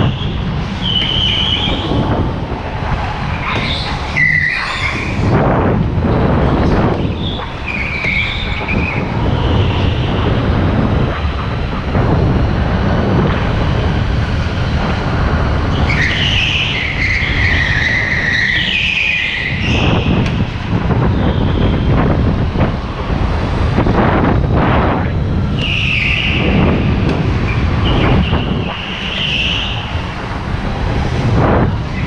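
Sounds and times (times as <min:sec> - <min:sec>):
go-kart engine rumble: 0:00.0 - 0:32.0
tyres squealing: 0:03.3 - 0:05.2, 0:07.1 - 0:10.2, 0:15.7 - 0:20.0.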